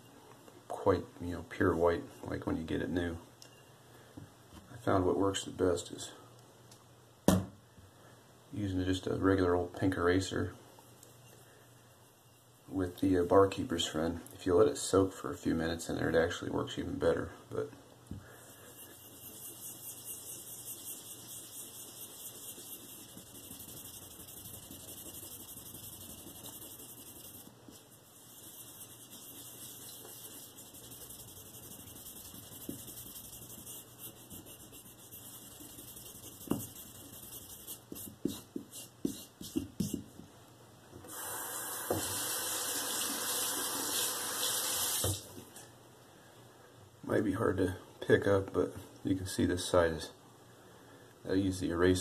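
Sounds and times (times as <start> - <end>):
eraser scrubbing ceramic stone: 18.5 - 40.0
water tap running: 41.1 - 45.2.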